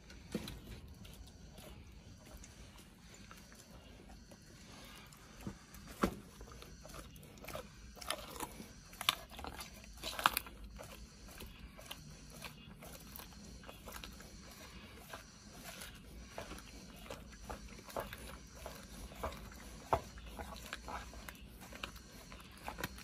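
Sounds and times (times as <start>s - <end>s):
dog chewing raw meat: 0.0s - 23.0s.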